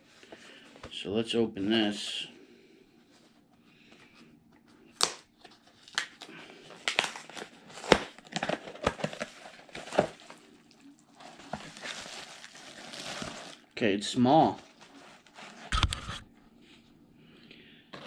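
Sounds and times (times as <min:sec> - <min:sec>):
packaging crinkling and tearing: 0:04.9 - 0:13.8.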